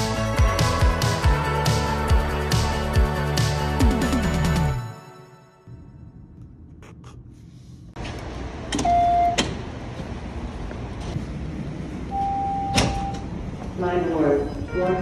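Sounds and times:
fare gate beeping: 14.6s - 15.0s.

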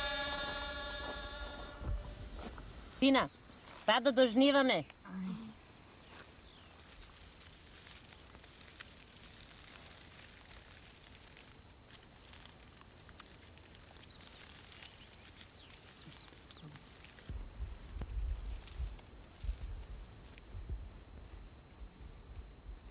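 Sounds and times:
dry straw crackling and rustling: 5.9s - 21.0s.

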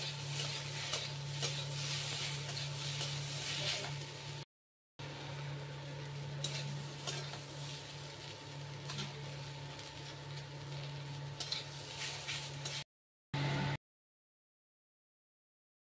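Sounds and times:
metal spatula scraping pan: 0.0s - 4.1s, 6.4s - 8.0s, 8.8s - 10.2s, 11.4s - 12.8s
vegetables sizzling in a wok: 0.0s - 13.8s.

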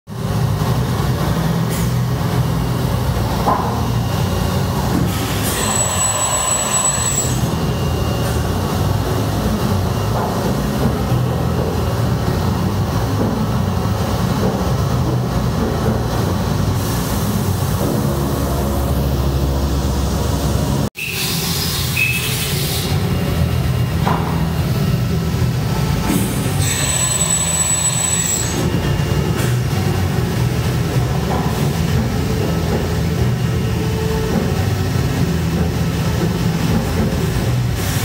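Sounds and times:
machine loud mechanical rumble: 0.1s - 38.0s
thin high whine: 3.5s - 10.8s, 26.3s - 29.3s.

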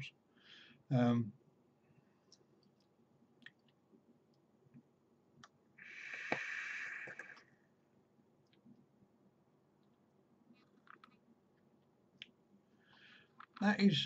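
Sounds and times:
vape drag hiss: 5.8s - 7.5s.

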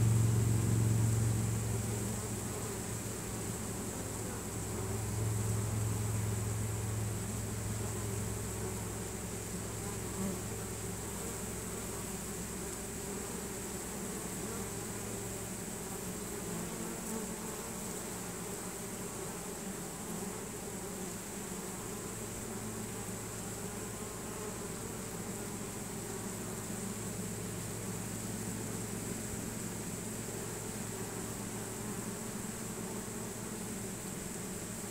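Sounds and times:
bee swarm buzzing: 0.0s - 34.9s.

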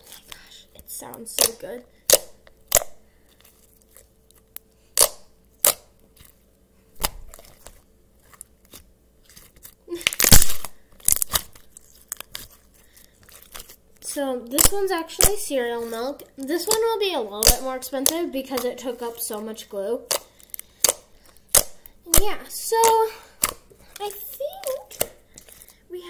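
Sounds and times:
slime popping and clicking: 1.1s - 3.0s, 20.1s - 23.6s.

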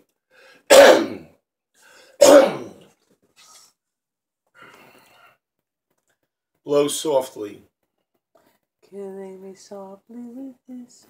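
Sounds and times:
faint breaths: 1.7s - 2.2s, 4.5s - 5.5s.

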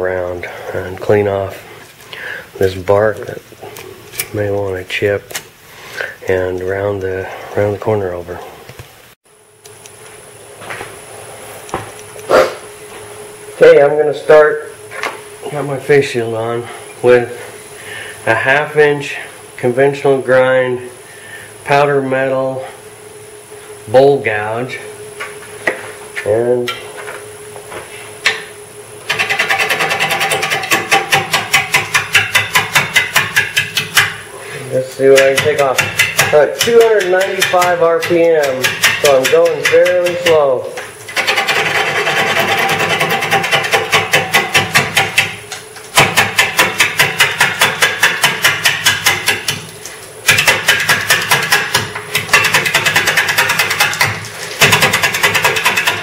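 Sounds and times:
wood lathe turning: 29.0s - 49.6s, 50.2s - 56.0s
gouge knocking on spinning wood: 29.1s - 34.2s, 35.0s - 40.5s, 41.2s - 56.0s
lathe gouge knocking on wood: 35.1s - 40.4s, 46.0s - 49.6s.

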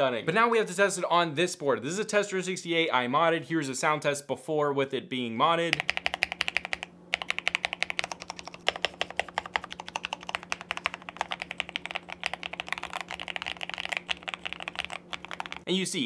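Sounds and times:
mechanical keyboard typing: 5.7s - 15.7s.

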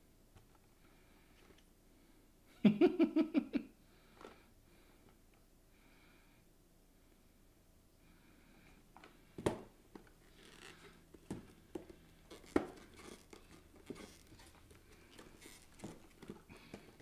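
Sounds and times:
plastic and cardboard rustling: 9.3s - 17.0s.

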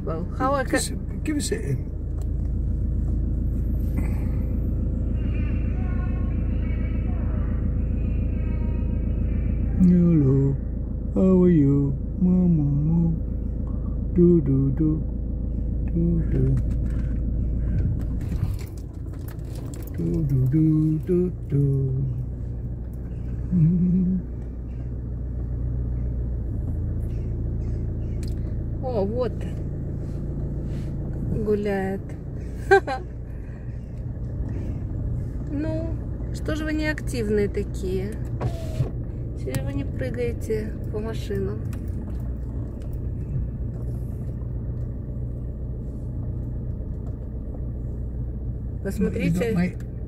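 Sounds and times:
car rumble from inside cabin: 0.0s - 50.0s
person humming: 11.2s - 15.1s, 23.5s - 24.4s.

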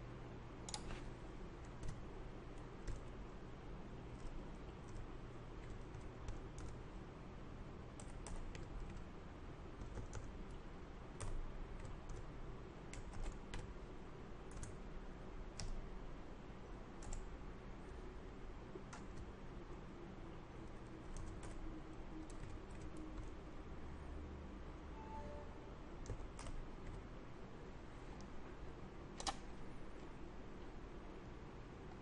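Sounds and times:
computer keyboard keystrokes: 0.7s - 1.0s, 1.6s - 3.1s, 5.6s - 6.8s, 8.0s - 9.0s, 9.8s - 10.4s, 11.2s - 12.3s, 12.9s - 13.7s, 14.5s - 14.8s, 15.5s - 15.8s, 17.0s - 17.3s, 18.9s - 19.3s, 20.8s - 21.6s, 22.2s - 23.4s, 26.0s - 27.0s, 29.2s - 29.5s.

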